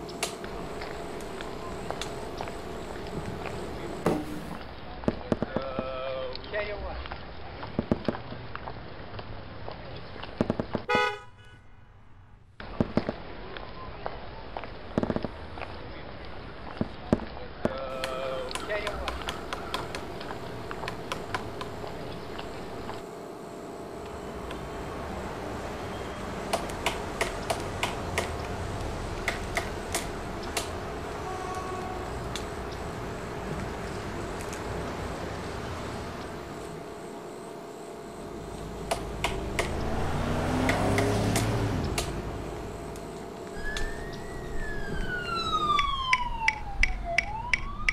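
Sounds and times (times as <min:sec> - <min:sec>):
emergency siren: 0:00.0 - 0:04.5, 0:18.0 - 0:47.9
sharp clicks: 0:00.1 - 0:03.9, 0:18.0 - 0:23.0, 0:26.5 - 0:30.8, 0:38.8 - 0:40.0, 0:40.6 - 0:42.2, 0:45.6 - 0:47.9
steady background hiss: 0:17.8 - 0:46.5
vehicle passing: 0:38.1 - 0:46.1.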